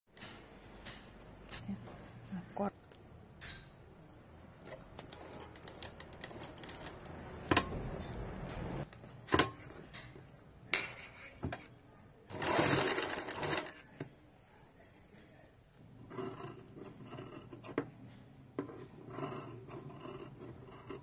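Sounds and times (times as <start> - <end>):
sewing machine stitching fabric: 12.3 - 14.0.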